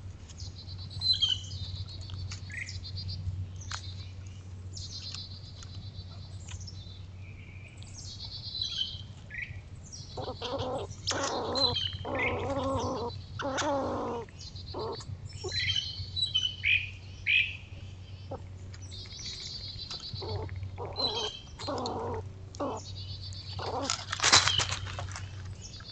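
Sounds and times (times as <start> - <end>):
steady low hum: 0.0 - 25.9
wild birds chirping: 0.0 - 25.9
louder lower bird calls: 10.1 - 17.6.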